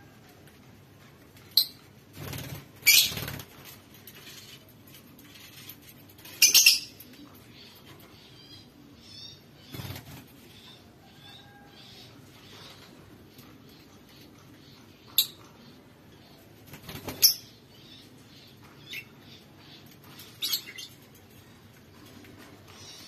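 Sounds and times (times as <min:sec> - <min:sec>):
wings flapping: 0:02.1 - 0:04.6, 0:09.7 - 0:10.4, 0:16.6 - 0:17.4
birds shrill calls: 0:02.8 - 0:03.4, 0:06.2 - 0:07.0.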